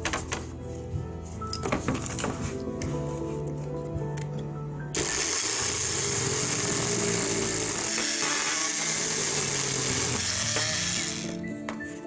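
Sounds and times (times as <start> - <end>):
oscillating multi-tool cutting board: 5.0 - 11.4.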